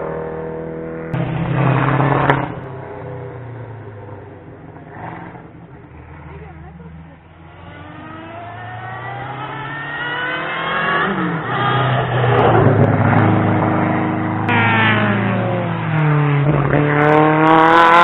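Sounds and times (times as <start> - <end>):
race car engine accelerating: 0.0 - 18.0.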